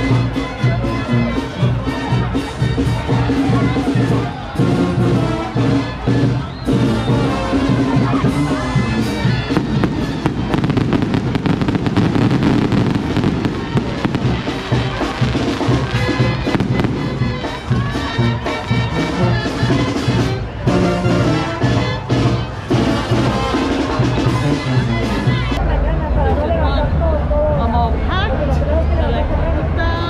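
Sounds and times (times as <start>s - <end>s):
loud music: 0.0s - 25.8s
fireworks crackling and popping: 6.7s - 17.8s.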